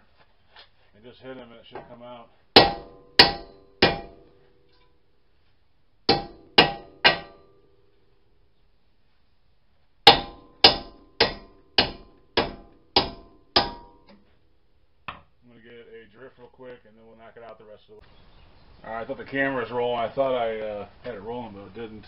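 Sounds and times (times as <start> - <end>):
hammer clanging on metal: 2.6 - 4.9, 6.1 - 7.8, 10.0 - 14.3.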